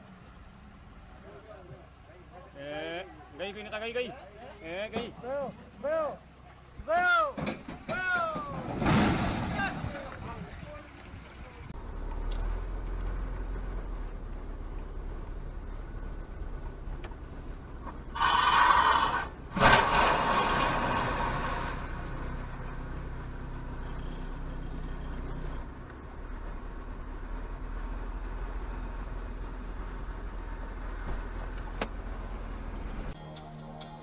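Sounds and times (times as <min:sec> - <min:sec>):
truck crashing onto its side: 0:07.4 - 0:10.3, 0:19.1 - 0:21.9.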